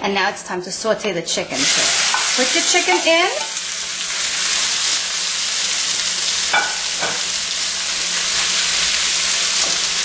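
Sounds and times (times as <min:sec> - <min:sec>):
chicken sizzling in frying pan: 0:01.6 - 0:10.0.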